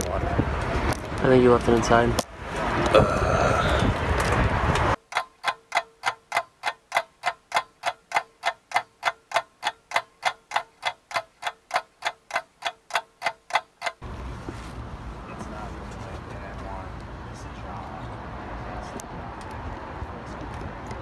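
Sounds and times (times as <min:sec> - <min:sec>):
clock ticking: 0:05.0 - 0:14.0.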